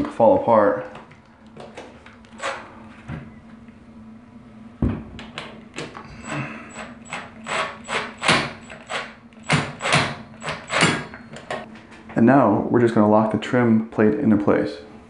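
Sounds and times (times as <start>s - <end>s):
cordless drill driving screw: 6.2s - 11.0s.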